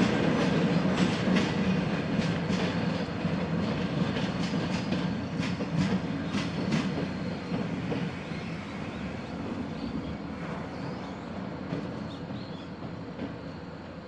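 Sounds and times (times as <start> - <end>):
train wheel clicks: 0.0 - 8.2
train rumbling: 0.0 - 14.0.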